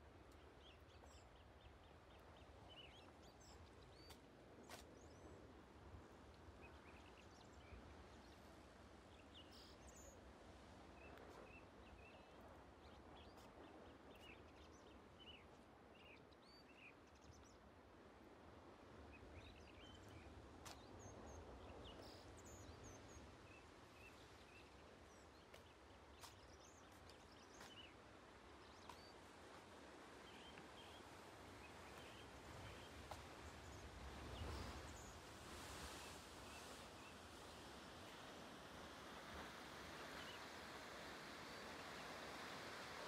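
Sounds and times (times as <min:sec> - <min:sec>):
sea: 0:00.0 - 0:43.0
small birds chirping: 0:21.9 - 0:28.0.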